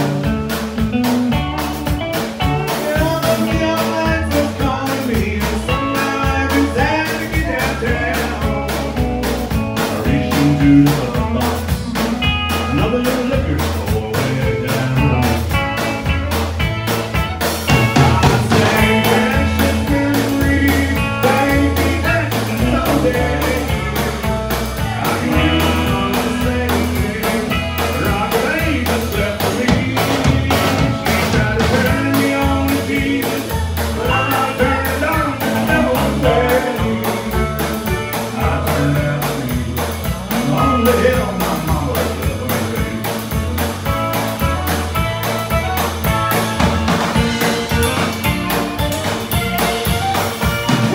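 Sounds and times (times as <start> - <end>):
country band playing: 0.0 - 50.9
drums: 0.0 - 50.9
fiddle: 43.4 - 50.9.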